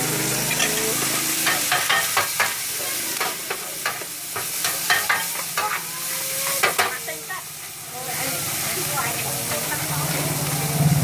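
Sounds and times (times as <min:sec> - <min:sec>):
food sizzling: 0:00.0 - 0:11.0.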